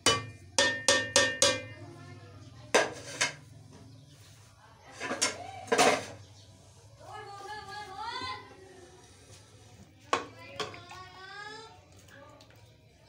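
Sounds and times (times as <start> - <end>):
utensil tapping cooking pot: 0.0 - 1.8, 10.1 - 11.0.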